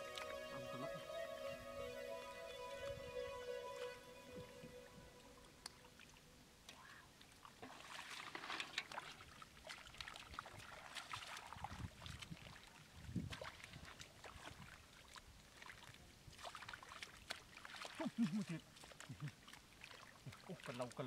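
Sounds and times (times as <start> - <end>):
hands splashing in muddy water: 7.6 - 20.8.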